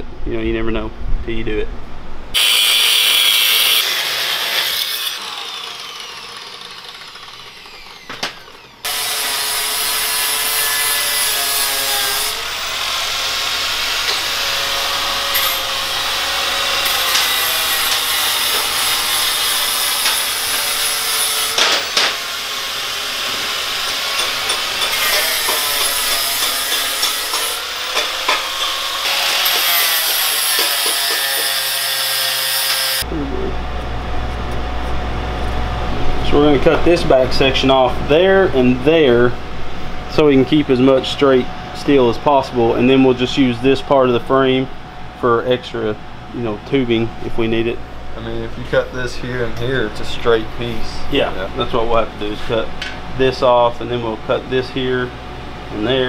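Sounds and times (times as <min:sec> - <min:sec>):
angle grinder cutting metal: 0:02.4 - 0:33.1.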